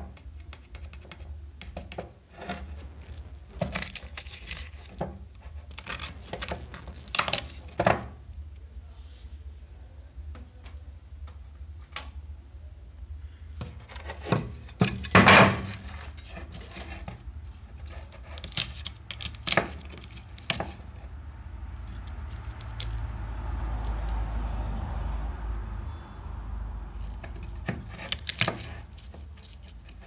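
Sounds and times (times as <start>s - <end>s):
steady low hum: 0.0s - 13.8s
rubbing scraping noise: 2.3s - 8.2s.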